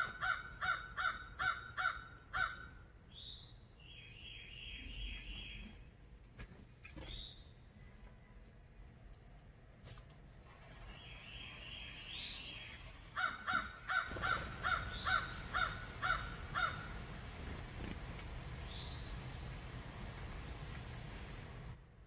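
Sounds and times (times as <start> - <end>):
bird calling: 0.0 - 5.9, 10.7 - 17.9
steady background hiss: 0.0 - 22.0.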